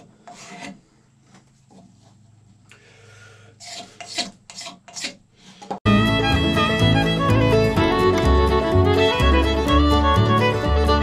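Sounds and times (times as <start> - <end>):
knife scraping horn: 0.0 - 0.8, 3.6 - 5.6.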